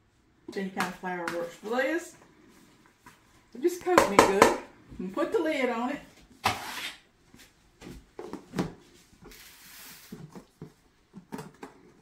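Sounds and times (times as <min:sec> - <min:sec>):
soft hiss: 0:09.0 - 0:10.4.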